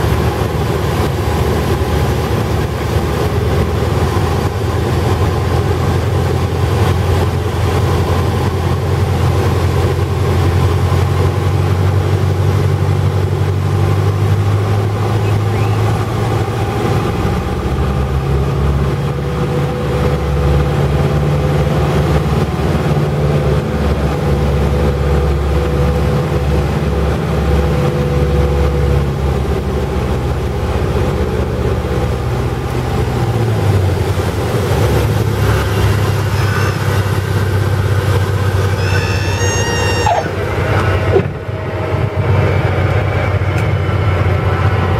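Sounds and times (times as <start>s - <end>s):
light aircraft engine and propeller: 0.0s - 44.9s
airflow noise: 30.4s - 44.9s.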